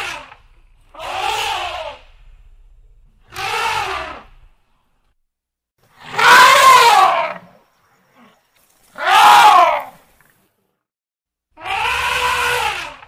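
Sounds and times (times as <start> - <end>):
elephant trumpeting: 0.0 - 2.4, 3.2 - 4.5, 6.0 - 10.0, 11.6 - 13.0.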